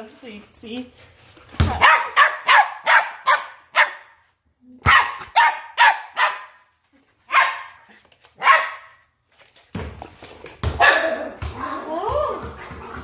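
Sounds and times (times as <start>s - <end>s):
puppy barking in high yaps: 1.7s - 4.2s, 4.8s - 6.6s, 7.3s - 7.8s, 8.4s - 9.0s, 10.8s - 11.3s.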